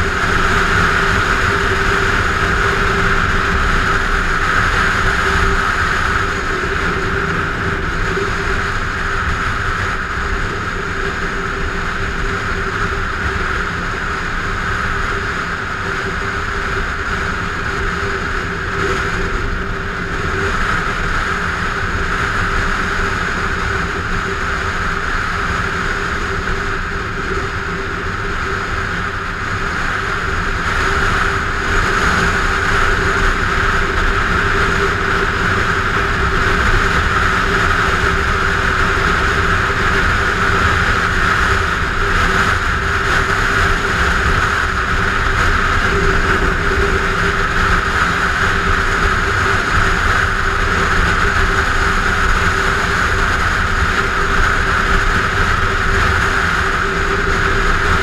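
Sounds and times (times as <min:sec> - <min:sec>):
motorcycle engine drone: 0:00.0 - 0:58.0
wind rush on microphone: 0:00.0 - 0:58.0.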